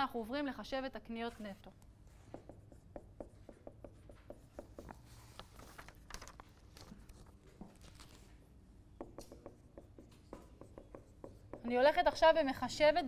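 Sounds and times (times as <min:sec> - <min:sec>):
marker writing on whiteboard: 0:02.1 - 0:05.1, 0:09.0 - 0:12.3.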